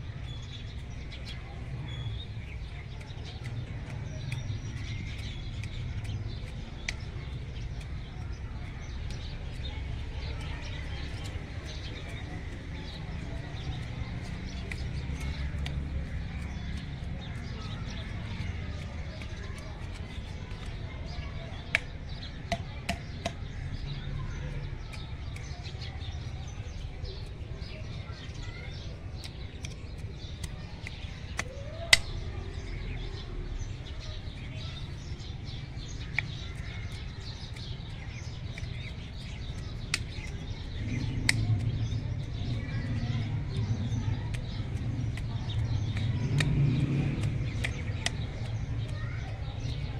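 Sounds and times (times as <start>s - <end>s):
hand cultivator scraping soil: 0.4s - 32.7s, 34.4s - 49.9s
low outdoor rumble: 26.2s - 49.9s.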